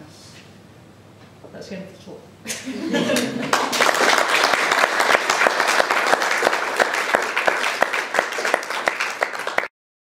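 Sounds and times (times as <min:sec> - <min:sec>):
audience applauding: 0:03.2 - 0:09.7.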